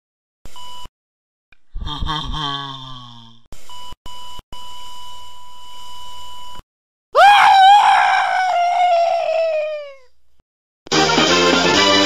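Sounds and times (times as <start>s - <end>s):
heart monitor flatline beep: 0.5s - 0.9s, 3.6s - 6.6s
loud long scream: 7.2s - 10.0s.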